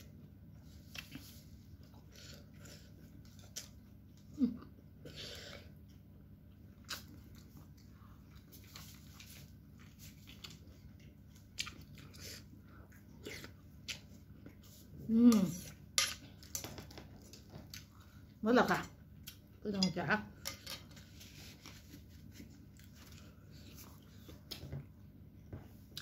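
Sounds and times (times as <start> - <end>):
chewing: 6.7 - 14.8.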